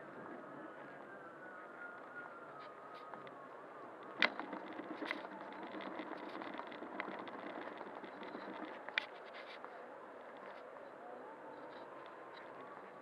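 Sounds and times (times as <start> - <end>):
faint motor whine: 0.0 - 13.0
clicks and rattles: 4.2 - 9.2.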